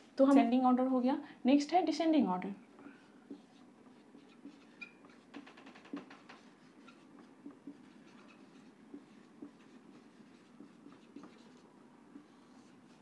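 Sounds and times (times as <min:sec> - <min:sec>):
marker squeaking on whiteboard: 0:03.3 - 0:13.0.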